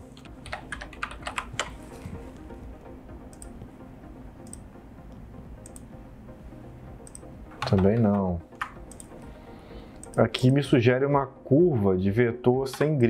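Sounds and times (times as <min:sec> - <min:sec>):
keyboard and mouse clicks: 0:00.2 - 0:01.8, 0:03.3 - 0:03.6, 0:04.4 - 0:04.7, 0:05.6 - 0:05.9, 0:07.0 - 0:09.2, 0:10.0 - 0:10.2.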